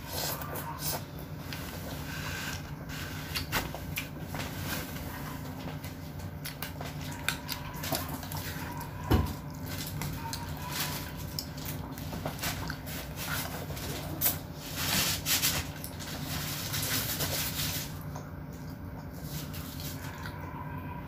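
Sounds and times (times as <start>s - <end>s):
wet mouth eating noises: 5.4s - 14.5s.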